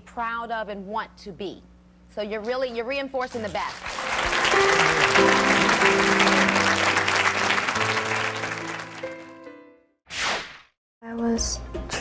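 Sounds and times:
audience applauding: 3.4 - 9.5
music with held notes: 4.0 - 9.9.

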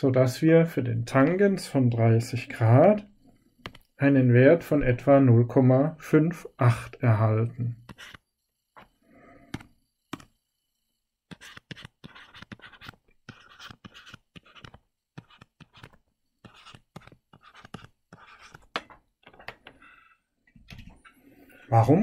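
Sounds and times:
stylus scratching on screen: 7.7 - 8.9, 11.3 - 18.7.

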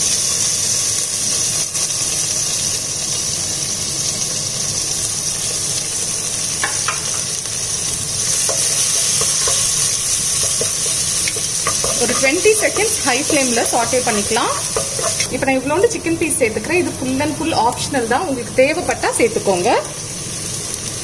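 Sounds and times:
onions sizzling in a pot: 0.0 - 21.0
wooden spatula stirring: 8.4 - 15.3.

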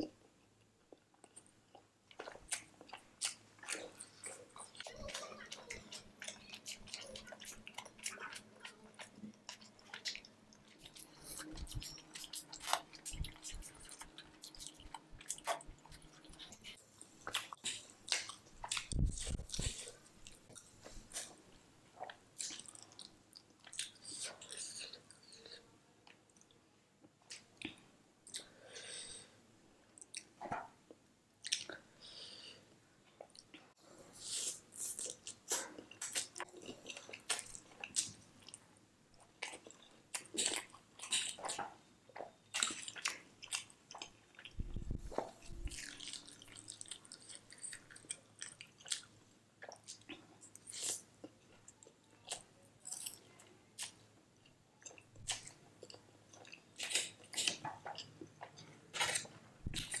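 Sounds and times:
wet chewing noises: 0.9 - 21.4, 34.5 - 54.0.

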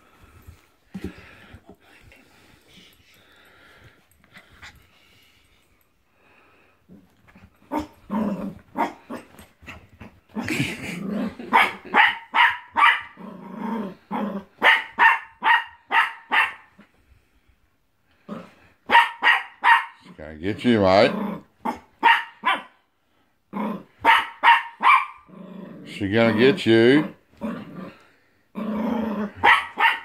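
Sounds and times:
dog growling: 7.7 - 9.3, 10.3 - 11.5, 13.1 - 14.6, 20.7 - 21.8, 25.2 - 29.4
puppy yapping: 29.4 - 30.0.

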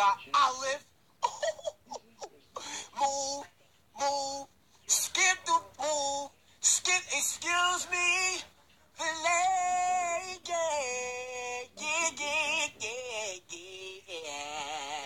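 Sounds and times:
high-pitched voice singing: 3.0 - 7.9.

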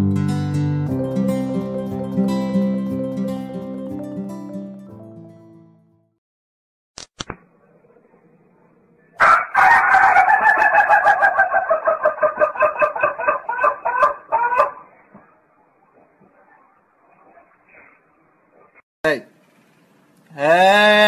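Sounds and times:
rooster crowing: 9.2 - 14.9.

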